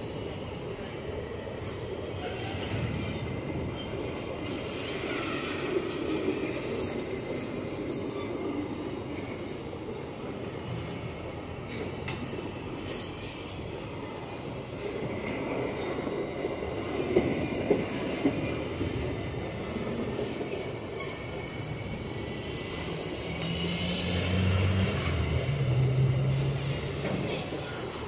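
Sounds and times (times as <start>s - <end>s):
freight train wheels rumbling: 0.0s - 28.0s
faint high wheel squeal: 20.8s - 24.3s.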